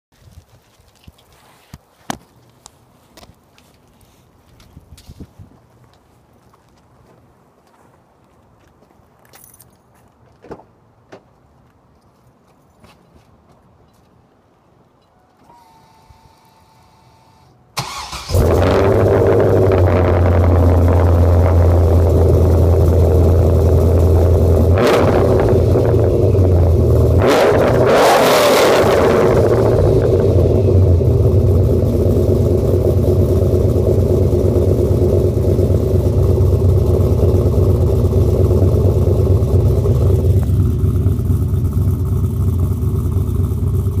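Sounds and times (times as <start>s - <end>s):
car exhaust idling and revving: 18.3s - 44.0s.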